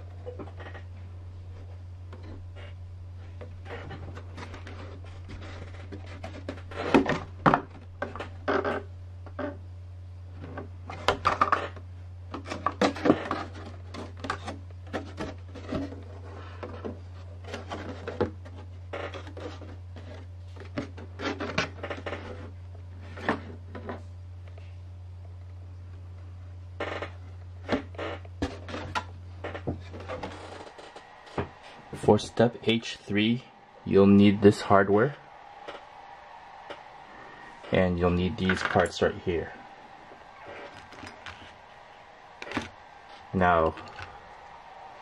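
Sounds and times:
steady low hum: 0.0s - 10.9s.

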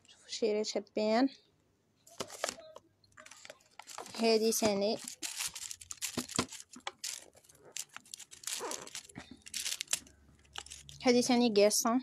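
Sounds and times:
paper rustling and crinkling: 2.1s - 11.2s.

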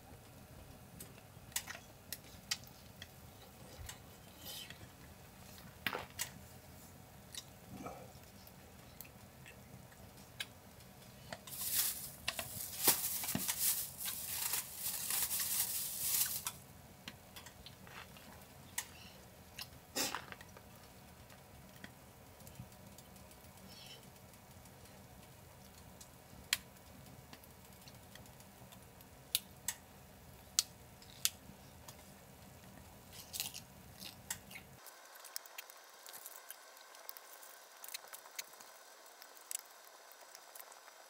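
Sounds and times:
rustling or crinkling: 10.0s - 16.6s, 17.5s - 18.9s, 31.0s - 41.0s.

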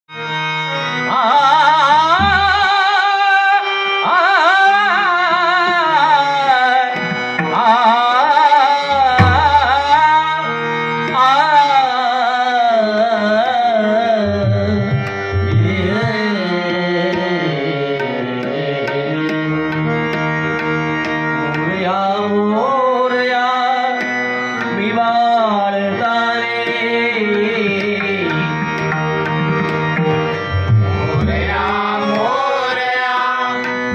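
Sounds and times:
percussion and instrumental accompaniment: 0.1s - 33.9s
man singing high-pitched prayer: 11.2s - 14.9s, 15.6s - 19.2s, 31.2s - 33.7s.

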